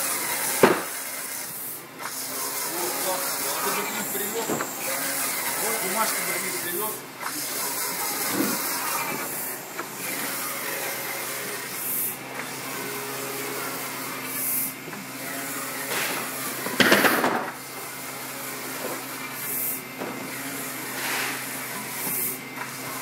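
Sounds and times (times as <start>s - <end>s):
printer hissing swish: 0.0s - 14.8s, 18.7s - 19.8s, 20.5s - 23.0s
printer machine hum and fan: 0.0s - 23.0s.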